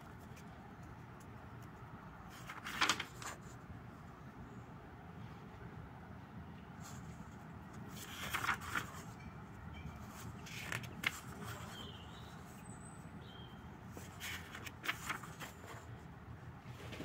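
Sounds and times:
notebook pages turning: 2.3s - 3.6s, 7.9s - 9.1s, 10.2s - 11.8s, 13.9s - 15.9s.

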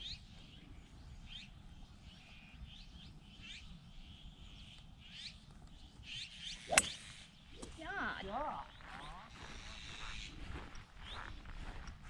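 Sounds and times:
birds chirping: 0.0s - 12.0s
golf club striking ball: 6.7s - 7.8s.

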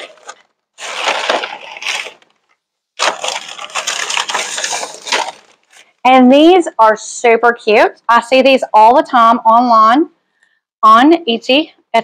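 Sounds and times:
paper crinkling and rustling: 0.0s - 6.0s.

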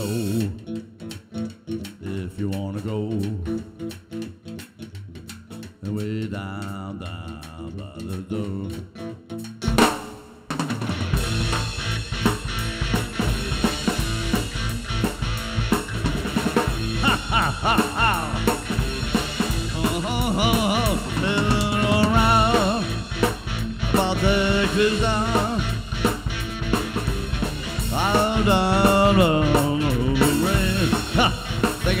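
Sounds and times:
blues-rock band playing: 0.0s - 32.0s
electric guitar bent lead notes: 0.0s - 32.0s.

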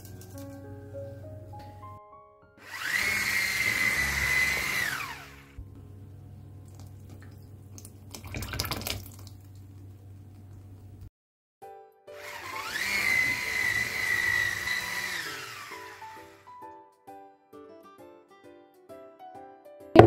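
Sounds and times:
soft background music: 0.0s - 2.6s
electric hand mixer whining: 2.6s - 5.6s, 12.2s - 16.6s.

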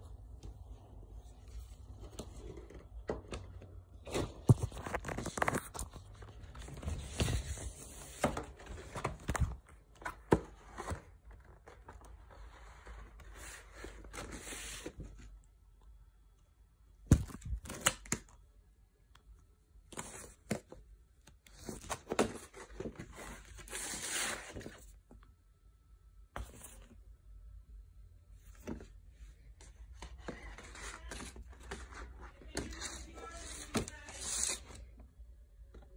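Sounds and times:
paper and card rustling: 1.3s - 15.2s, 21.5s - 24.9s, 29.6s - 34.9s.

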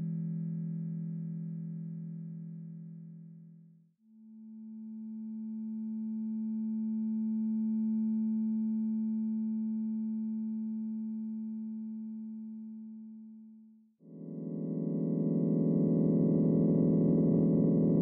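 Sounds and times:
synthesized sustained chord: 14.2s - 18.0s.

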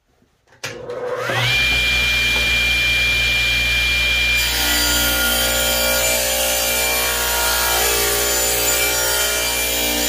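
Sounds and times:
table saw high whine: 0.9s - 10.0s
saw blade cutting wood: 1.1s - 3.2s, 4.0s - 10.0s.

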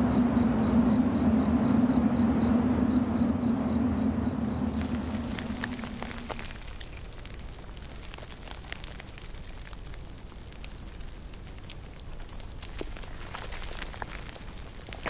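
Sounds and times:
low hum: 0.0s - 8.3s
faint hiss with crackles: 4.6s - 15.0s.

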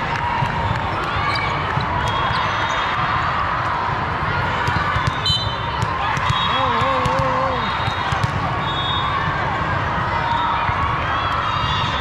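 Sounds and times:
volleyballs bouncing and hit: 4.4s - 8.6s
crowd murmur: 5.9s - 8.6s.

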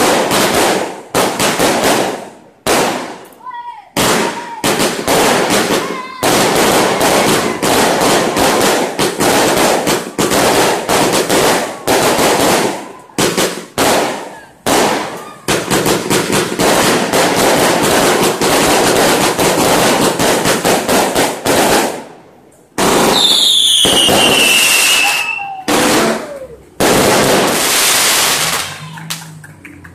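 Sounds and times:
fireworks crackling and popping: 0.0s - 29.9s
firework whistle falling in pitch: 23.2s - 26.6s.

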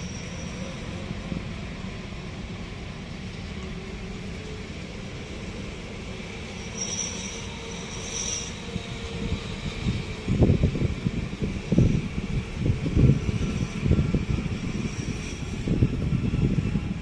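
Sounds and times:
high wheel squeals: 0.0s - 1.2s, 6.2s - 10.1s, 12.9s - 16.8s
freight train rumbling past: 0.0s - 17.0s.

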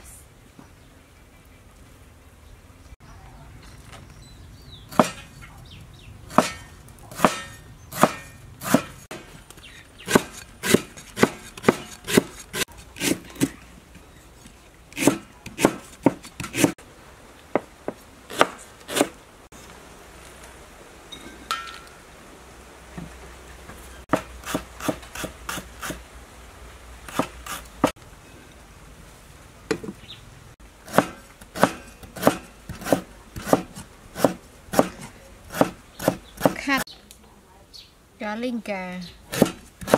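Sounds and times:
cleaver chopping on wooden board: 4.9s - 5.2s, 6.3s - 9.4s, 10.0s - 13.6s, 15.0s - 16.8s, 18.3s - 19.1s, 27.1s - 27.6s, 30.8s - 36.6s, 39.3s - 39.9s.

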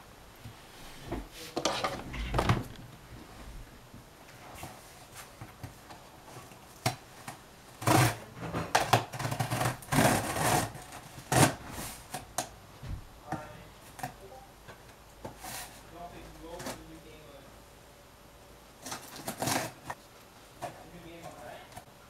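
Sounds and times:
blade slitting packing tape: 18.8s - 20.0s.

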